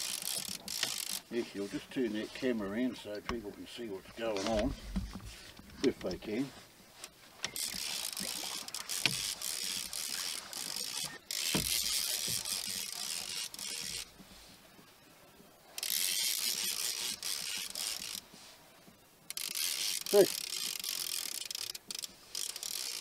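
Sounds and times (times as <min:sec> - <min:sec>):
fishing reel winding: 0:00.0 - 0:01.4, 0:07.5 - 0:14.2, 0:15.8 - 0:18.3, 0:19.3 - 0:23.0.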